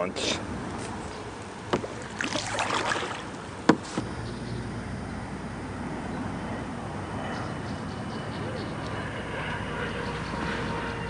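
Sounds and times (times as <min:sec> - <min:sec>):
paddle splashing water: 0:01.4 - 0:04.0
paddle knocking kayak hull: 0:01.7 - 0:04.0.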